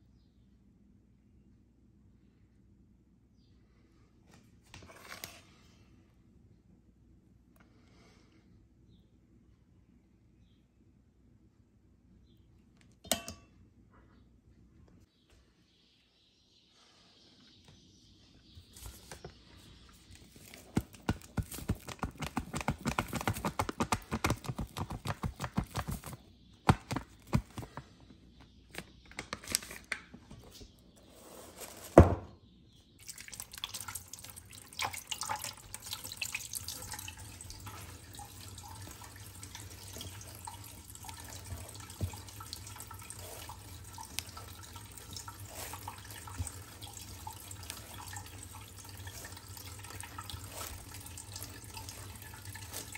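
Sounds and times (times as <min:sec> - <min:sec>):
tap running water into sink: 0:33.1 - 0:52.9.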